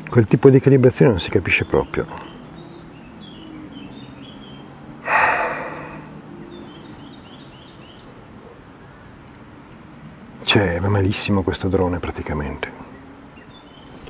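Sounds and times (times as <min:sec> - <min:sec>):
small birds chirping: 0:00.0 - 0:14.0
man sighing loudly: 0:05.0 - 0:06.2.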